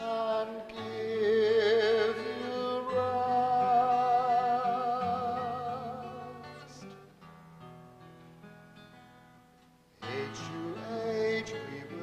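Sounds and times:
person singing a hymn: 0.0s - 7.0s, 10.0s - 12.0s.

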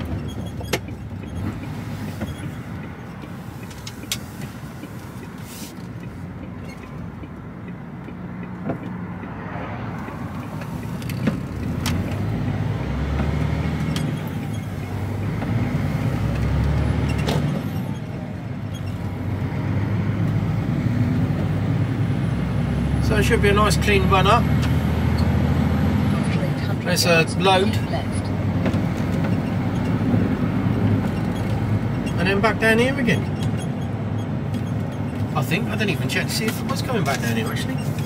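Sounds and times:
cab and trailer rattles: 0.0s - 38.0s
lorry diesel engine: 0.0s - 38.0s.

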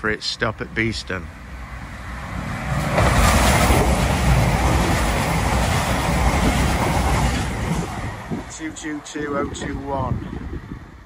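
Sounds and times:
train passing: 0.0s - 11.0s.

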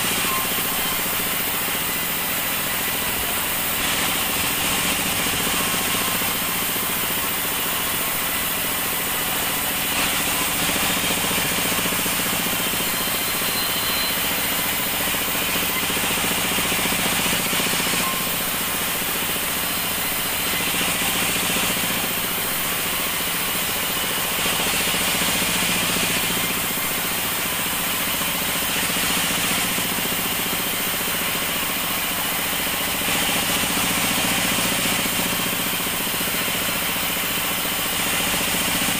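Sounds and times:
band saw machine drone: 0.0s - 38.3s
saw cutting wood hiss: 0.0s - 38.4s.

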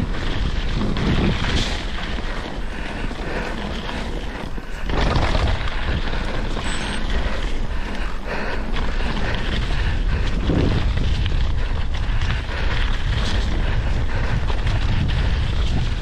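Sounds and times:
bike rattling: 0.0s - 16.0s
bike tyres rolling on gravel: 0.0s - 16.0s
wind on microphone: 0.0s - 16.0s.

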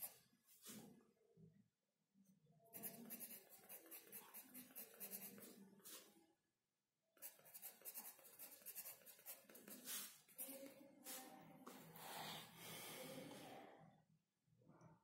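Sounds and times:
pencil scratching on paper: 0.0s - 0.8s, 2.7s - 6.1s, 7.2s - 10.8s
hand rubbing across paper: 8.6s - 11.2s.

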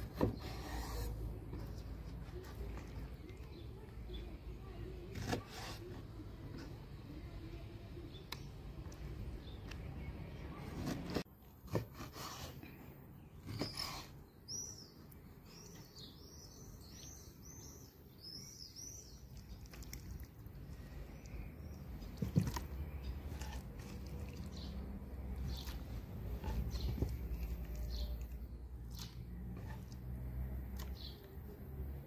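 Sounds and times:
small bird chirping: 13.2s - 30.0s.

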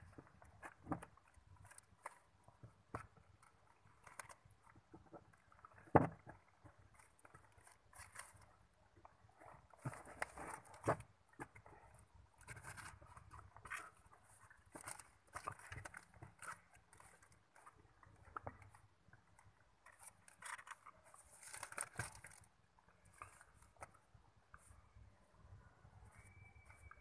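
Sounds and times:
paper packaging rustling: 9.4s - 18.8s, 19.8s - 24.0s.

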